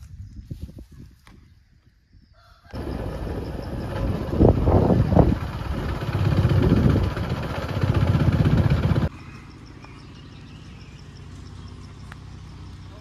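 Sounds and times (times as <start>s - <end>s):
road and wind noise: 0.0s - 13.0s
motorcycle engine running: 2.7s - 13.0s
low hum: 2.8s - 9.1s.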